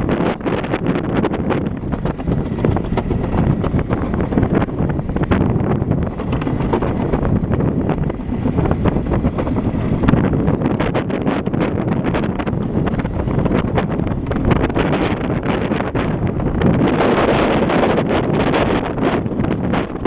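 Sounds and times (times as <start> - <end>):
bobsled rumbling on track: 0.0 - 20.0
wind noise on microphone: 0.0 - 20.0.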